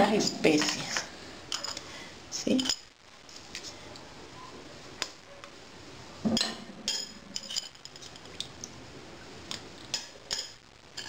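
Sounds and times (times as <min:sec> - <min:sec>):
metal spoons clinking on plate and pot: 0:01.5 - 0:01.8, 0:02.5 - 0:02.9, 0:06.3 - 0:08.5, 0:09.9 - 0:11.0.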